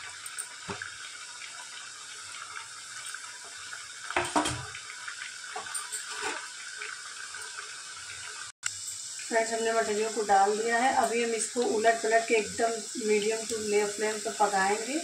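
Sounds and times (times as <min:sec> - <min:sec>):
dough frying in bubbling oil: 0:00.0 - 0:15.0.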